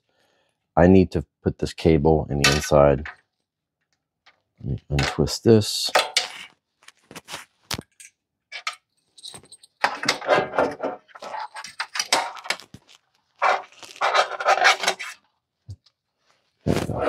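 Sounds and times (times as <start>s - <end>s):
metal frame scraping and rattling: 9.2s - 12.7s, 13.4s - 15.2s.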